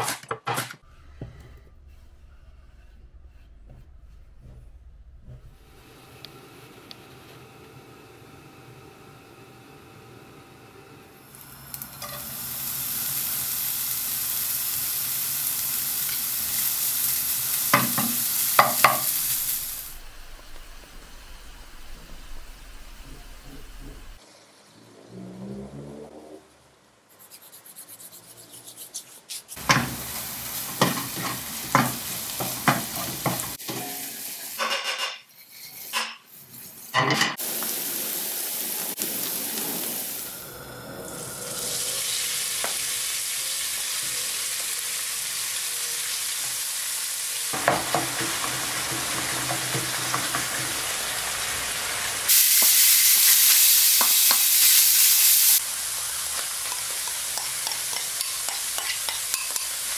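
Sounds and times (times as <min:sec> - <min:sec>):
meat frying: 0:05.6 - 0:24.4, 0:29.6 - 0:34.7, 0:37.4 - 0:40.7, 0:41.3 - 0:59.9
vegetables frying in pan: 0:05.7 - 0:24.4, 0:29.6 - 0:34.6, 0:37.4 - 0:40.5, 0:41.7 - 0:59.9
spoon scraping a pan: 0:11.9 - 0:12.3, 0:28.6 - 0:37.4, 0:56.6 - 0:59.9.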